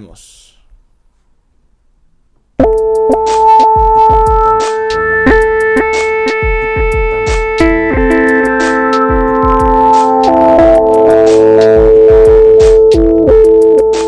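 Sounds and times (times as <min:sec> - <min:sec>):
held synth chord: 0:02.6 - 0:14.0
kick-drum thumps: 0:11.8 - 0:13.5.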